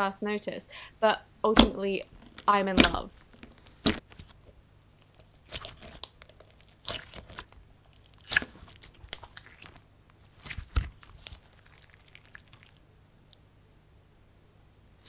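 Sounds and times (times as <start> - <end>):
sticky slime squishing: 1.5 - 12.8.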